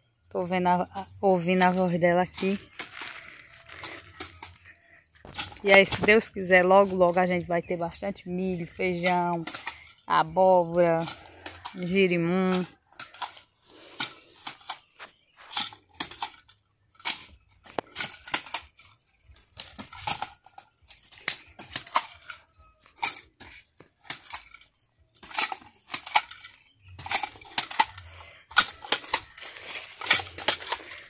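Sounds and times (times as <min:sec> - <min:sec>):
hoe chopping soil: 0:17.1 - 0:31.0.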